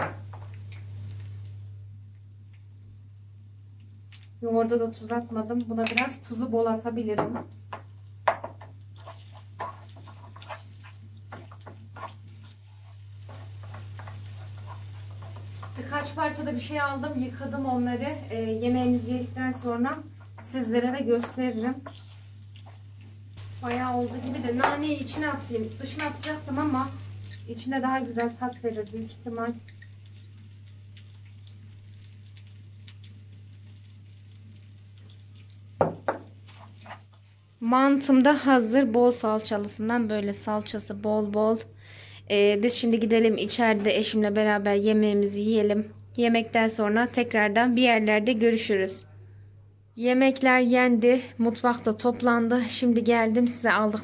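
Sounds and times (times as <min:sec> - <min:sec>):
steady low hum: 0:00.0 - 0:36.4
sauce sizzling: 0:00.2 - 0:01.8, 0:07.8 - 0:39.7
wooden spoon knocking a pan: 0:07.2 - 0:08.8, 0:35.8 - 0:36.4
wooden spoon scraping a pan: 0:08.3 - 0:16.6, 0:20.1 - 0:27.5, 0:36.4 - 0:37.3.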